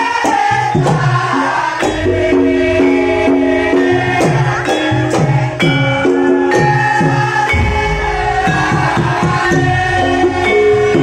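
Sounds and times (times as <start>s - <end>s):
ringing metallophone notes: 1.8s - 11.0s
hand drum strokes: 7.3s - 10.4s
gong notes: 7.5s - 10.5s.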